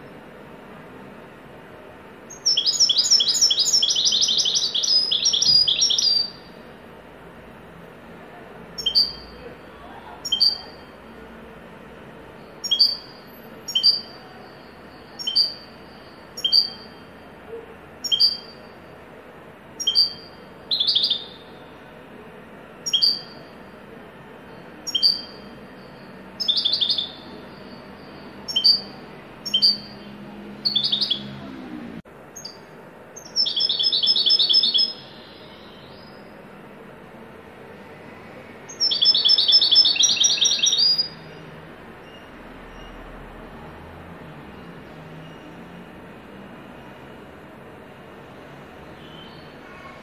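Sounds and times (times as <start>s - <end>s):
goldfinch song with trills: 2.3s - 6.5s, 15.2s - 17.0s, 18.0s - 18.7s, 19.8s - 21.4s, 22.8s - 23.4s, 24.9s - 25.6s, 26.4s - 31.4s, 32.4s - 36.3s, 38.7s - 41.2s.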